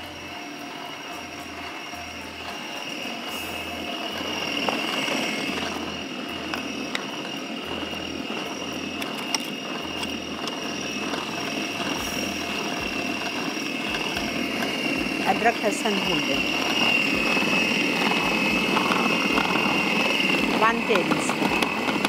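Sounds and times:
food processor running: 0.0 - 22.0.

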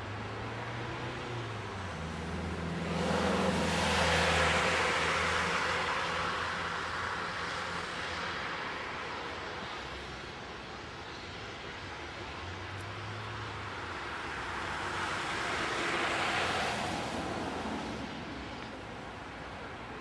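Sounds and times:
city traffic hum: 0.0 - 20.0
vehicle passing by: 2.3 - 6.6.

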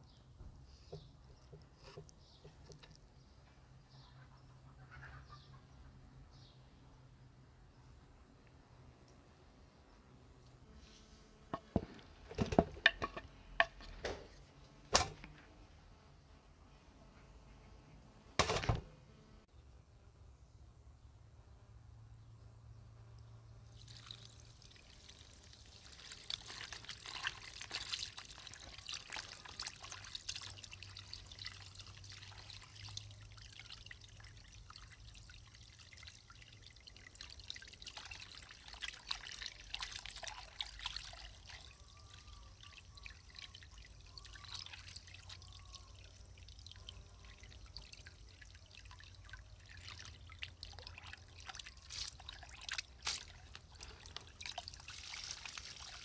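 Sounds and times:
water splashing and sloshing: 23.8 - 45.4, 46.0 - 56.0
hose water pouring into bowl: 23.8 - 56.0.

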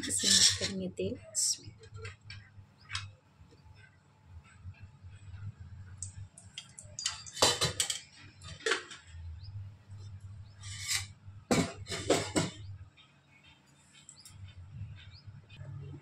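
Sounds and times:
metal utensils clattering: 0.0 - 0.8, 7.0 - 9.1, 10.6 - 12.6
low steady hum: 0.0 - 16.0.

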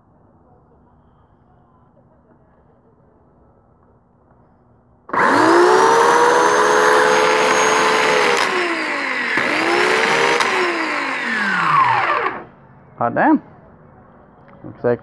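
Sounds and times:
electric chainsaw whining: 5.1 - 12.6.

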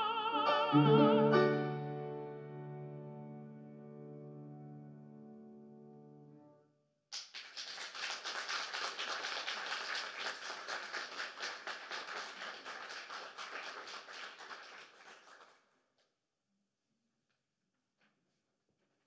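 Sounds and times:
soprano and piano chord: 0.0 - 6.7
audience applause: 7.1 - 15.7.

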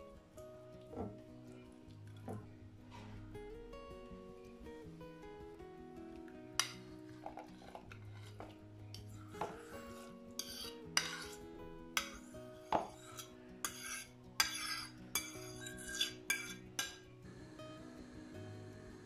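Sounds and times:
soft guitar music: 0.0 - 19.0
fork scraping ceramic plate: 7.6 - 8.6, 9.4 - 11.4, 12.8 - 17.0.

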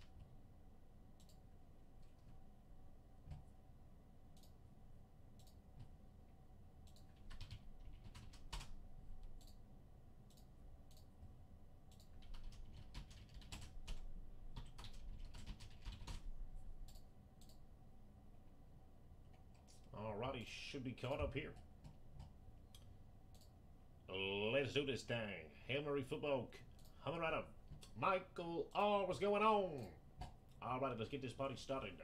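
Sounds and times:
typing on computer keyboard: 6.9 - 9.6, 11.9 - 17.6.

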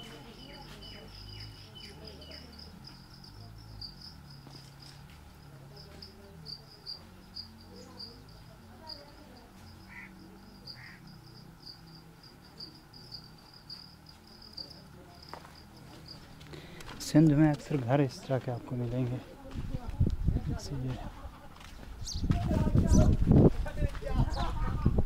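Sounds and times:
insect trilling: 0.0 - 16.4.

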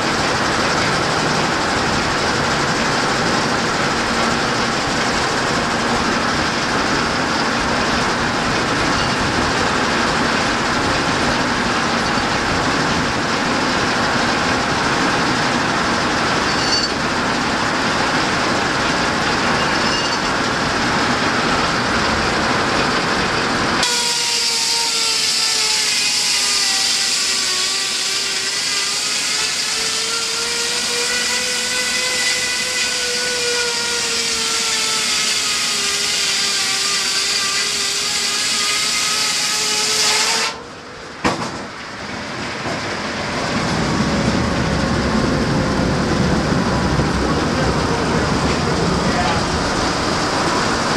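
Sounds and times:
sawmill cutting rasp: 0.0 - 40.7
saw whine over hiss: 0.1 - 40.7.

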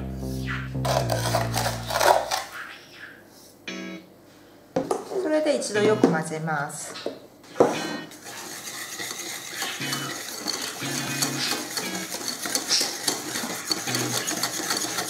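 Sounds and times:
whisk clicking against bowl: 8.2 - 15.0.

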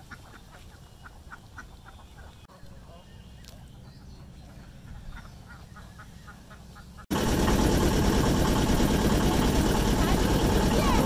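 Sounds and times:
low background rumble: 3.8 - 11.0
loud steady rushing noise: 7.1 - 11.0.

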